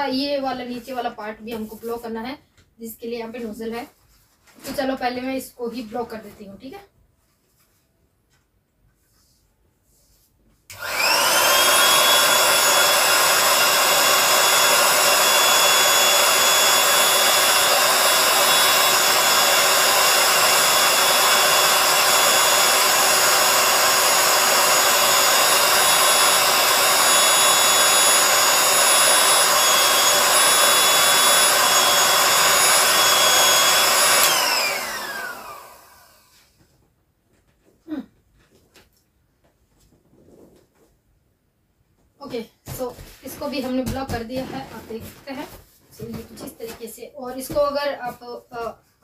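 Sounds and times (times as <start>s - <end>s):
electric air pump whine: 10.7s - 36.6s.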